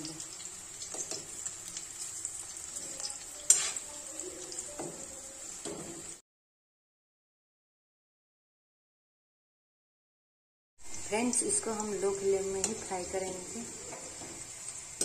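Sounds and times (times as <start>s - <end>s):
batter sizzling in hot oil: 0.0s - 6.2s, 10.8s - 15.0s.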